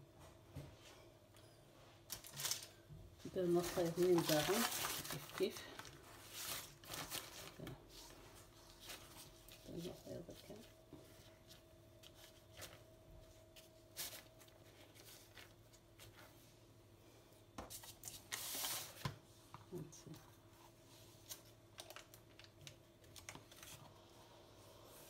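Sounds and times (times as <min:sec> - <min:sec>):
faint steady hum: 0:00.0 - 0:25.0
baking paper crinkling: 0:02.0 - 0:16.5, 0:17.7 - 0:19.1, 0:21.1 - 0:24.0.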